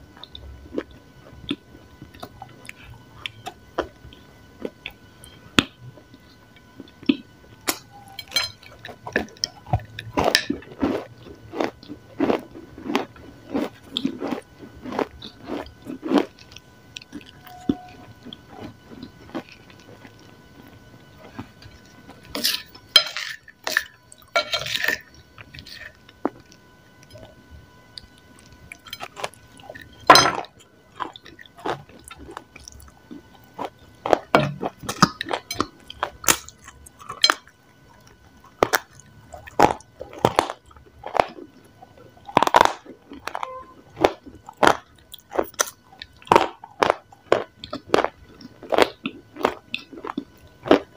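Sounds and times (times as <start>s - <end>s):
crunchy chewing: 0.1s - 50.9s.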